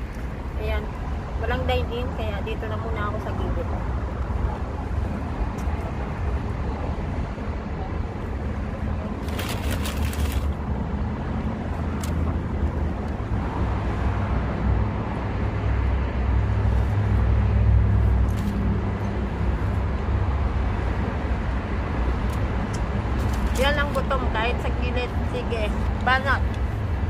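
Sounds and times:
road traffic rumble: 0.0 - 27.0
foil and paper bag crinkling: 9.2 - 10.6.

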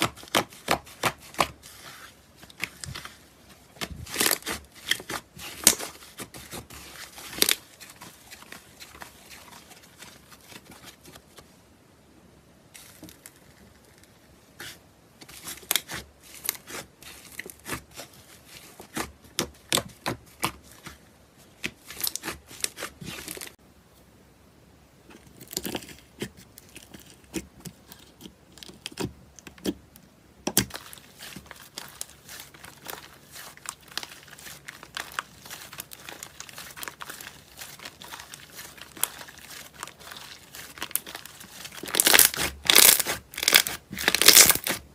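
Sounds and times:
crunchy slime crackling and popping: 2.4 - 11.0, 30.4 - 44.9.

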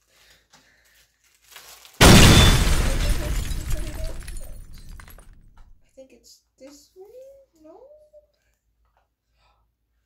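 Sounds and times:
heavy booming crash: 2.0 - 5.7.

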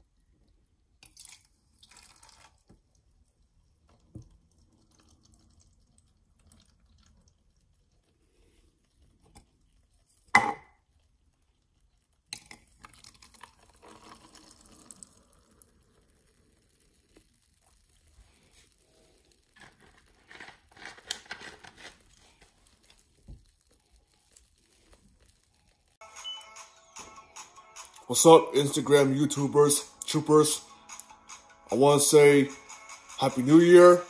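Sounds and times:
soda poured into plastic cup: 1.0 - 8.9, 12.4 - 25.8
soda fizzing: 1.0 - 9.2, 12.2 - 26.0
cups knocking on table: 10.4 - 10.7.

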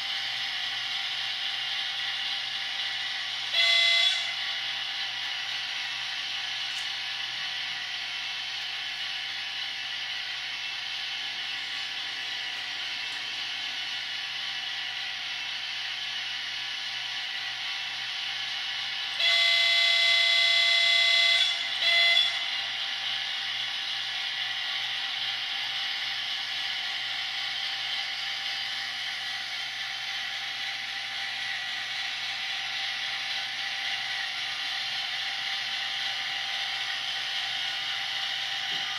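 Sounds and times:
model locomotive engine sound: 0.0 - 38.9
locomotive horn: 3.5 - 4.4, 19.1 - 22.6.

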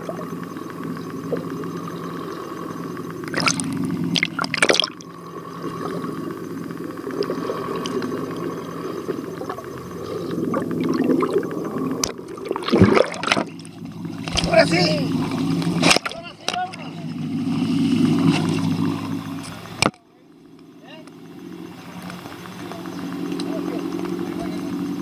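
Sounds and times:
low underwater hum: 0.0 - 25.0
bubbles gurgling: 3.2 - 6.1, 6.8 - 16.2.

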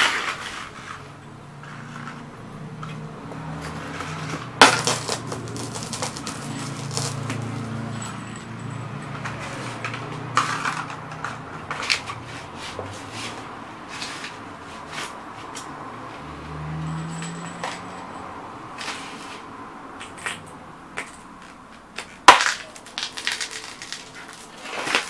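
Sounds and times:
glass shards clinking: 3.6 - 12.2, 16.7 - 19.1, 22.3 - 25.0
glass tubes crunching under boots: 3.6 - 12.2, 21.0 - 25.0.

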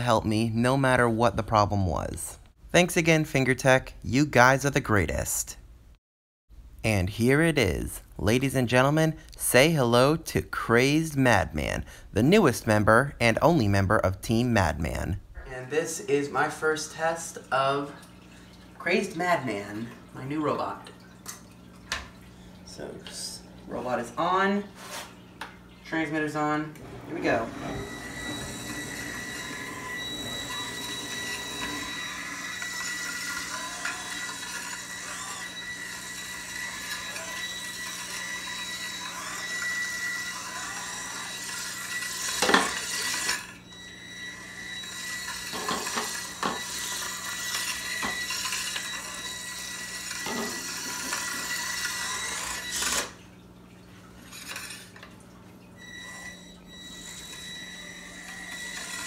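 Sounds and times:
small motors whining: 26.8 - 53.2, 55.8 - 59.0.

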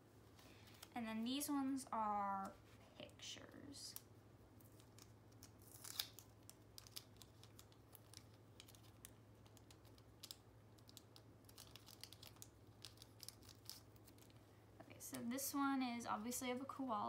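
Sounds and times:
low steady hum: 0.0 - 17.0
fingers tapping paper cards: 6.2 - 14.4.

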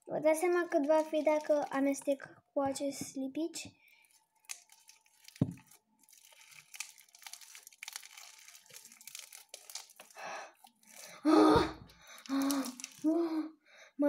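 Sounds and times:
slime crackling and tearing: 0.4 - 2.0, 4.1 - 13.1.

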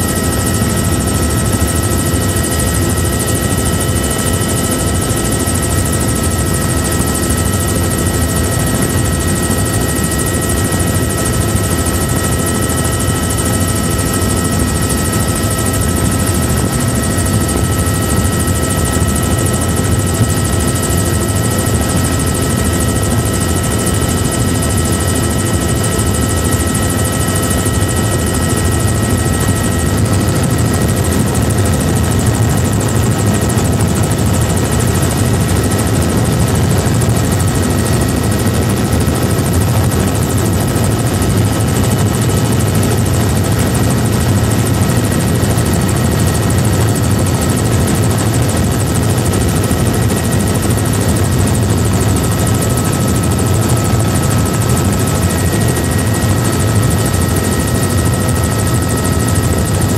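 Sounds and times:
helicopter rotor and engine drone: 0.0 - 59.9
steady high whine: 0.0 - 59.9.

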